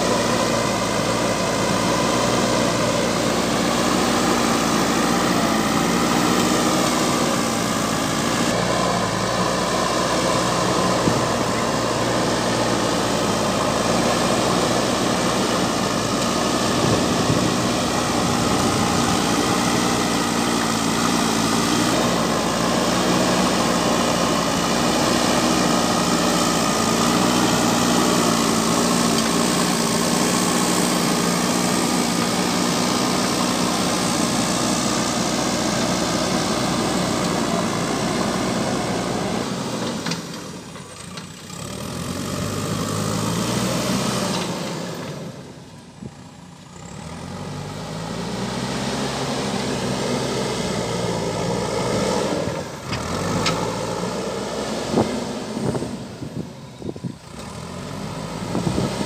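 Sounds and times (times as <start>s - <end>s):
diesel engine running: 0.0s - 59.0s
loader bucket pushing soil: 0.0s - 59.0s.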